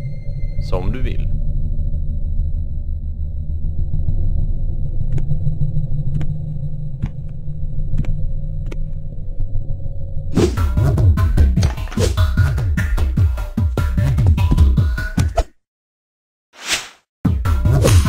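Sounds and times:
faint hum: 0:00.0 - 0:10.3
low rumbling drone: 0:00.0 - 0:11.0.

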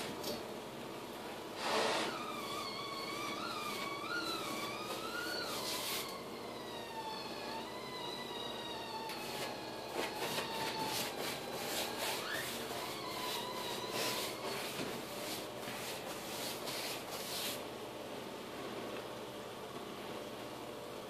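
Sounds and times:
paintbrush scrubbing a wall: 0:02.2 - 0:06.2, 0:09.2 - 0:17.6.

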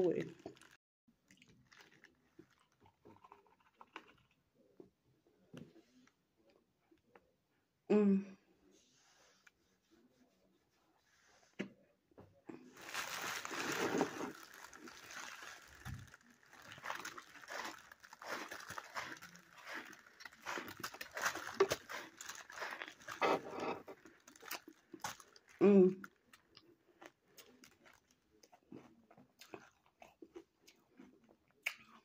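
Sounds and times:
crunchy ice being chewed: 0:00.1 - 0:04.7, 0:12.8 - 0:32.0.

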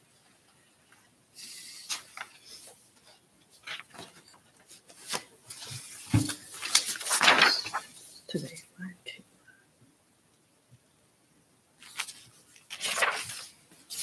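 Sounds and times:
paper rustling and shuffling: 0:01.8 - 0:08.6, 0:11.8 - 0:14.0.

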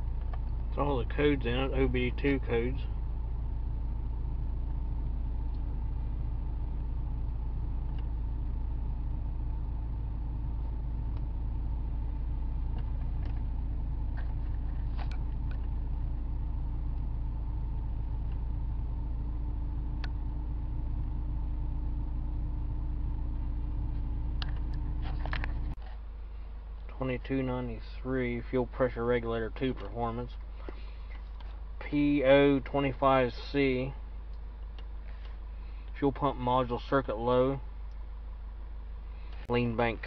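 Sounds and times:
car engine idling: 0:00.0 - 0:40.0.

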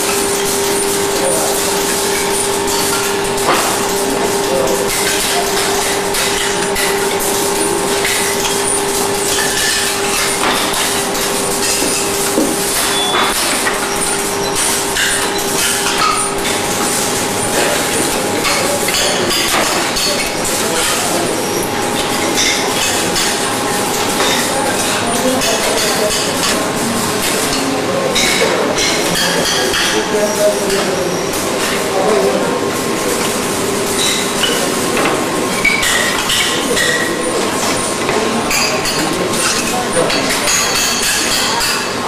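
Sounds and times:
machinery hum: 0:00.0 - 0:29.4.

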